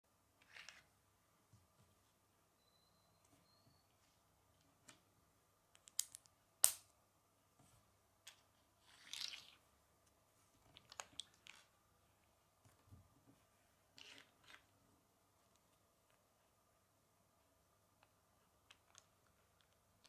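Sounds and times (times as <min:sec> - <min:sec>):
plastic bricks clicking together: 0:05.8 - 0:06.8.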